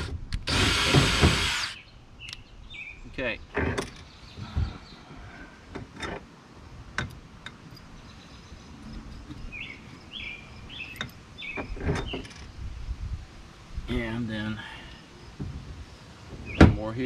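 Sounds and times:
bird chirping: 1.6s - 5.6s, 7.6s - 12.9s, 14.7s - 17.0s.

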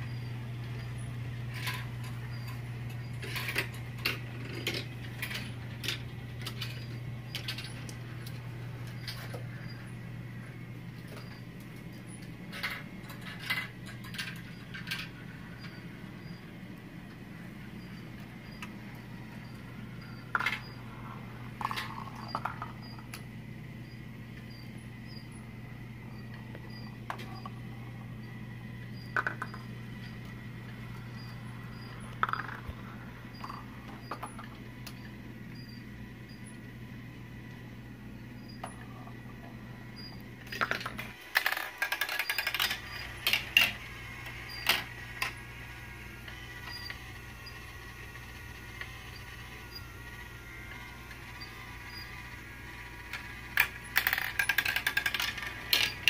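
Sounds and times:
low hum: 0.0s - 41.2s
marbles clicking on track joints: 0.6s - 23.3s, 26.3s - 27.7s, 29.0s - 35.2s, 40.4s - 56.0s
marbles rolling on plastic track: 0.6s - 23.3s, 26.0s - 35.2s, 38.6s - 56.0s.

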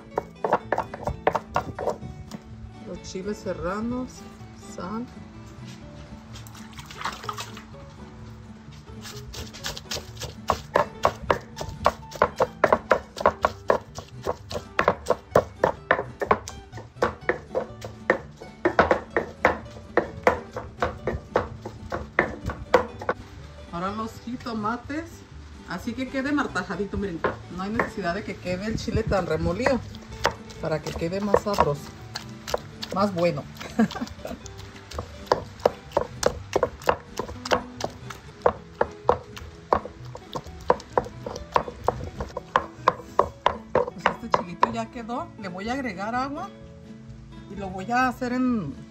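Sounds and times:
stone pestle pounding: 0.0s - 2.4s, 9.0s - 23.2s, 27.1s - 28.2s, 28.8s - 44.9s.

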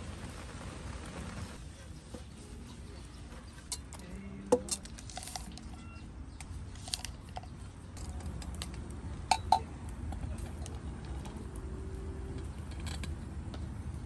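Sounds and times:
wood fire crackling: 0.0s - 4.2s, 6.4s - 14.0s.

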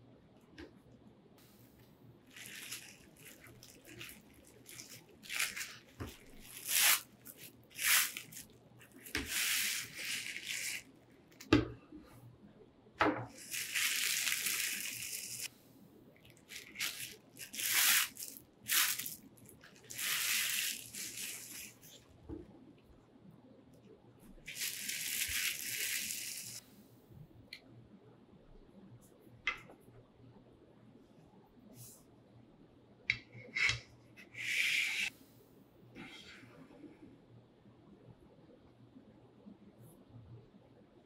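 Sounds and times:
bubble wrap rustling and crinkling: 2.2s - 11.5s, 13.3s - 15.5s, 16.2s - 22.1s, 24.3s - 26.6s.

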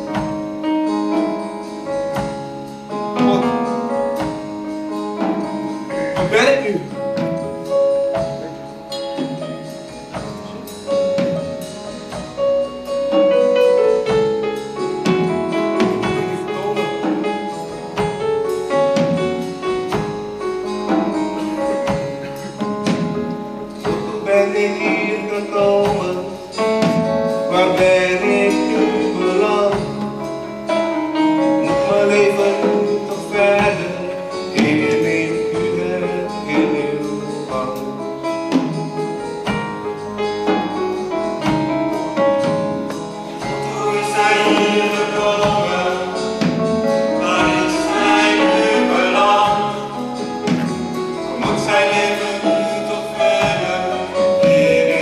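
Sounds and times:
live band playing: 0.0s - 55.0s
person singing: 43.4s - 55.0s.

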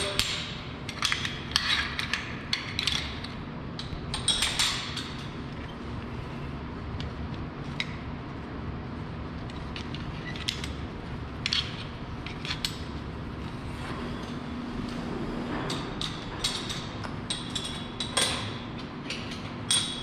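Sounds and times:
metal carabiners clinking: 15.7s - 20.0s.

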